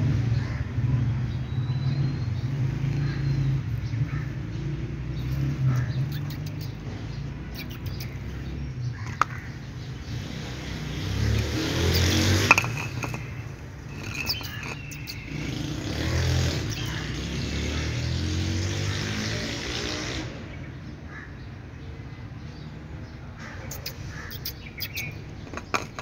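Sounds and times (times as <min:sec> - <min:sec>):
faint bird chirps: 0:05.2 - 0:09.6, 0:11.8 - 0:17.5, 0:23.5 - 0:26.0
sharp clicks: 0:05.3 - 0:06.9, 0:07.5 - 0:08.3, 0:11.3 - 0:15.4, 0:23.7 - 0:26.0.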